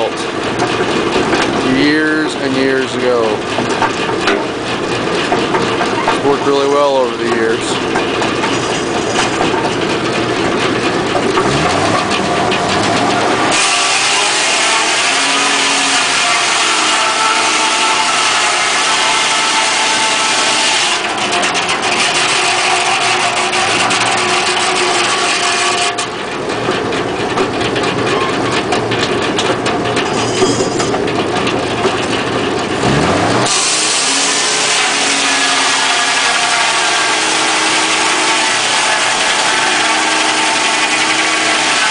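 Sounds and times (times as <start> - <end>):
circular sawmill sawing log: 0.0 - 4.0, 5.1 - 9.7, 11.1 - 26.2, 32.8 - 41.9.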